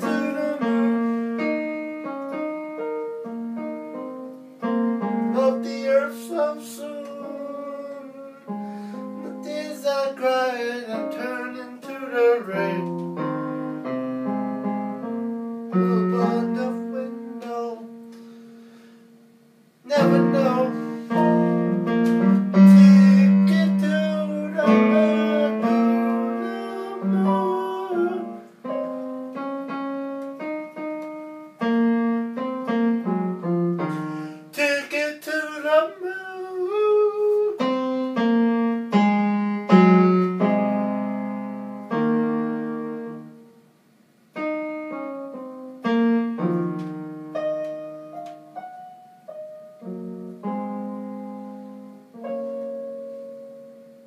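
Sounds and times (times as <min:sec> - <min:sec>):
man singing: 0:00.0 - 0:01.5, 0:05.3 - 0:08.6, 0:09.2 - 0:13.0, 0:15.7 - 0:18.0, 0:19.8 - 0:21.5, 0:22.1 - 0:28.9, 0:33.9 - 0:38.5
electronic keyboard piano chords: 0:00.0 - 0:54.0.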